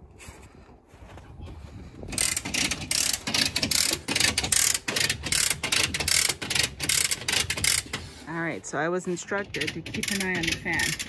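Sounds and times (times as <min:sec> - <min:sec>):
ratchet winch pawl clicking: 0:02.1 - 0:08.4, 0:09.0 - 0:11.0.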